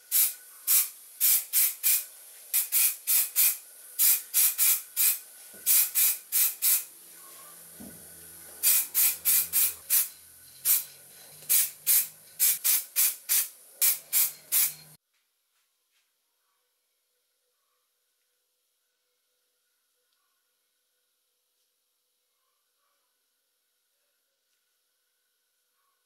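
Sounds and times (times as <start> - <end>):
spray paint can hissing: 0.0 - 6.9, 8.6 - 15.0.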